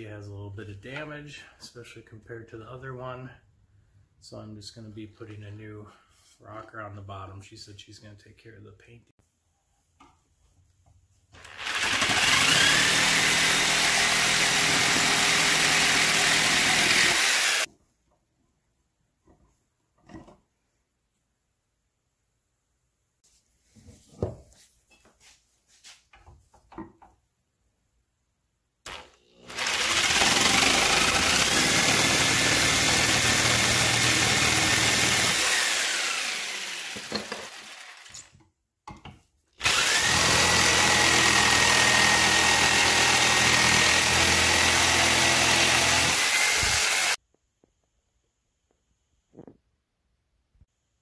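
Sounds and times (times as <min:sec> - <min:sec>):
electric jigsaw cutting wood: 0:11.4 - 0:17.7, 0:28.9 - 0:38.3, 0:39.6 - 0:47.2.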